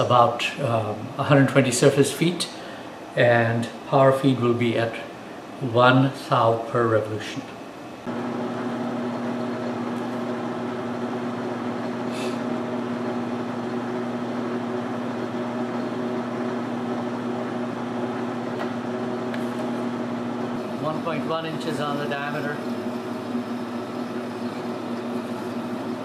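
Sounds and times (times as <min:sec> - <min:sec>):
metal lathe humming: 0:08.0 - 0:26.0.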